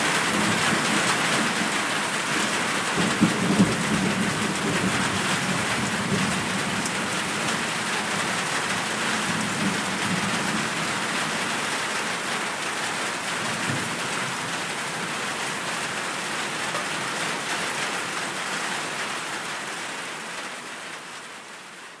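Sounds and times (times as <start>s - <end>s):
heavy rain hissing: 0.0s - 21.8s
low rumble of thunder: 2.8s - 8.3s.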